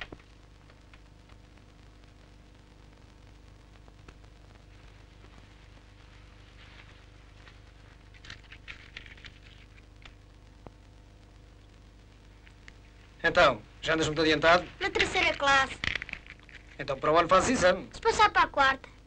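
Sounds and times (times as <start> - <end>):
low hum: 0.0 - 17.2
crackling and rustling: 0.0 - 18.7.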